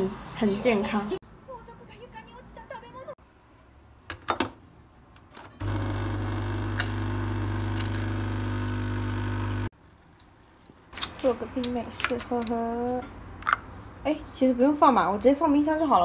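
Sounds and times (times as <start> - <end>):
coffee machine pump buzzing: 5.6 - 9.7.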